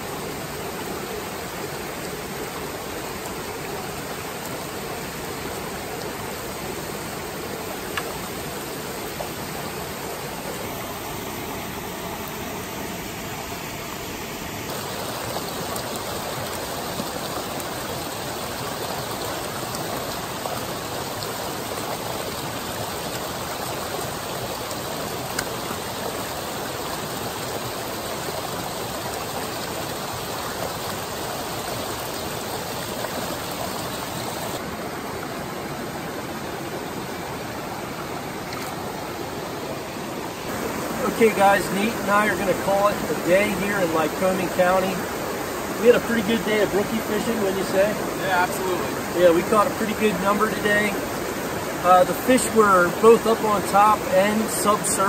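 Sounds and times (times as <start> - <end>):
brook rushing over rocks: 14.6 - 55.0.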